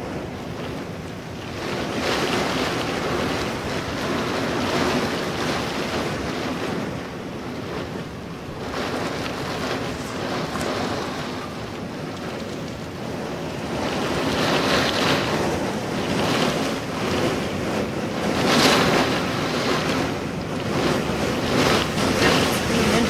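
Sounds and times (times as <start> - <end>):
driving rain: 0.0 - 23.0
storm wind gusting: 0.0 - 23.0
wind buffeting microphone: 0.0 - 23.0.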